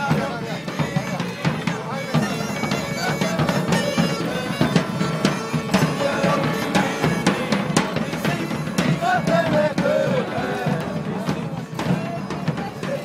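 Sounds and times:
field drums beating a march: 0:00.0 - 0:13.0
bagpipe tune with drone: 0:00.6 - 0:09.3.

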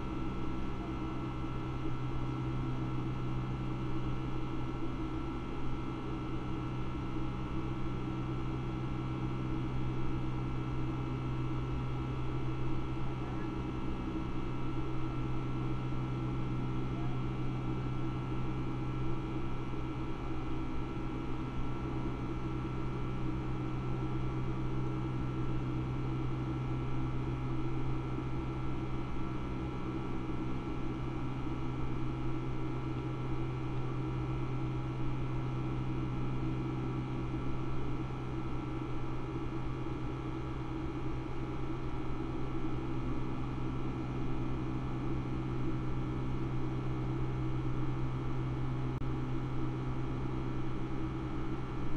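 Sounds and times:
jet engine cabin drone: 0:00.0 - 0:51.9.

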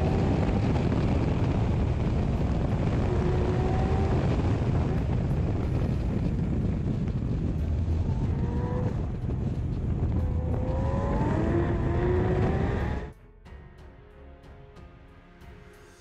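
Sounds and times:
wind rush on microphone: 0:00.0 - 0:13.1
sports car engine accelerating: 0:00.0 - 0:13.2.

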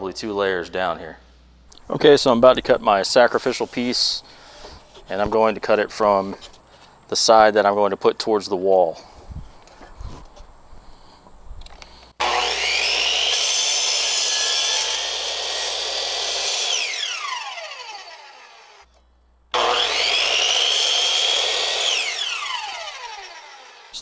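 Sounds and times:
miter saw cutting: 0:12.2 - 0:18.9, 0:19.5 - 0:24.0.

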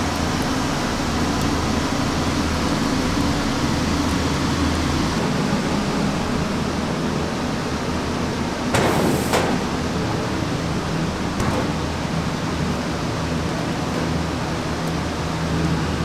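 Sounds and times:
steady hum and rushing noise: 0:00.9 - 0:16.0.

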